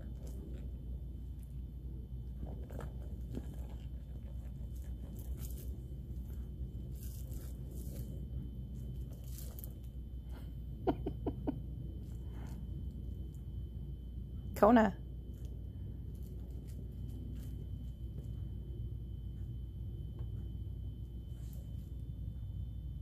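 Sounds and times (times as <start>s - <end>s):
puppy gnawing plush toy: 0.0s - 10.3s.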